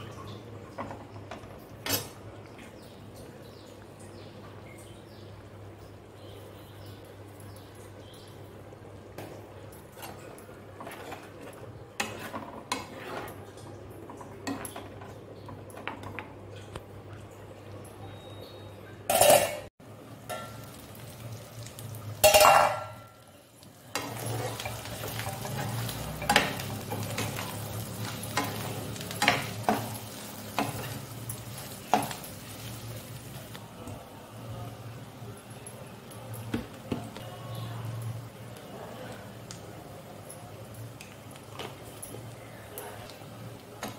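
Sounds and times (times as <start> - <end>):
prawns sizzling in oil: 0.0 - 18.4, 19.0 - 43.9
spoon scraping and tapping pan: 10.0 - 13.4, 24.0 - 32.7.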